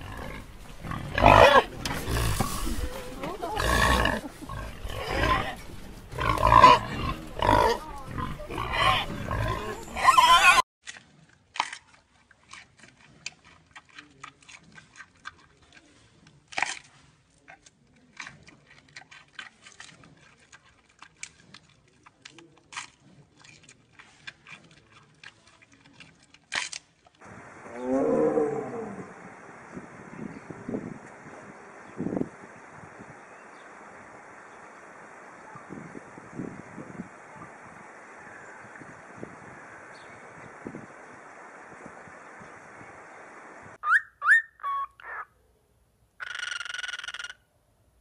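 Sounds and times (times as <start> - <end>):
warthogs grunting: 0.0 - 10.6.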